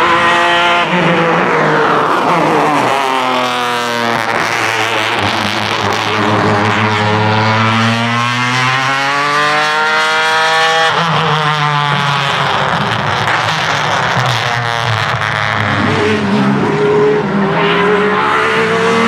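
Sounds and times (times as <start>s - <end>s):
race car engine at full throttle: 0.0s - 19.0s.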